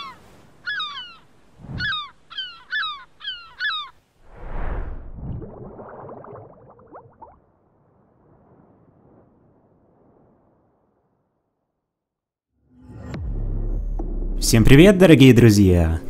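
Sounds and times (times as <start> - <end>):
seagulls calling: 0.0 - 4.0
splash into water: 4.4 - 7.4
underwater bubbling: 5.0 - 7.5.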